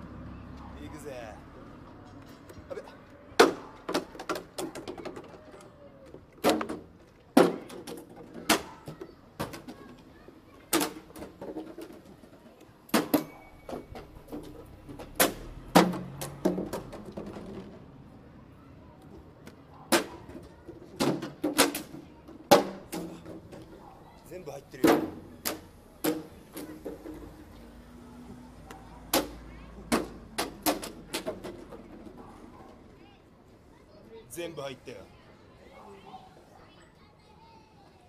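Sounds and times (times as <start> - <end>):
plastic bottles hitting ground: 14.2 - 17.8.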